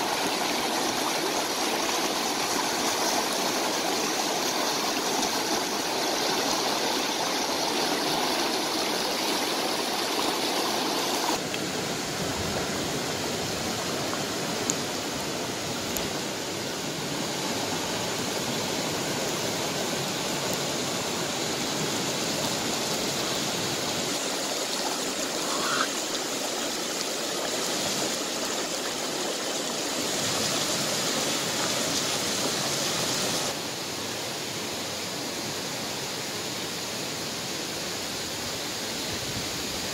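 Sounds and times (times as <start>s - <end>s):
stream rushing over boulders: 0.0s - 39.9s.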